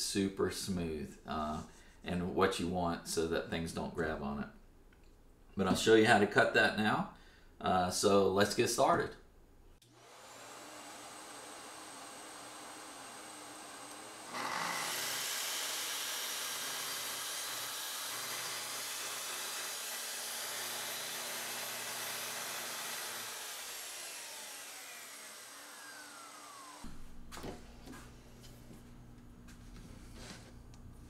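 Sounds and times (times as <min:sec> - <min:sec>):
saw blade winding down: 0:09.8 - 0:26.9
circular saw cutting board: 0:09.9 - 0:30.8
dust extractor humming: 0:09.9 - 0:31.0.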